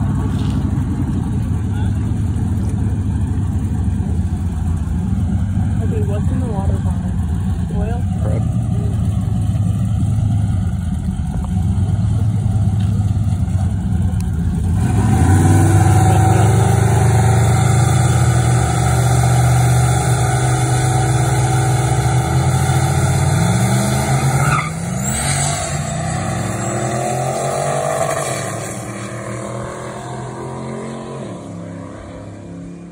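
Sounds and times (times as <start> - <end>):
truck engines accelerating: 0.0 - 32.9.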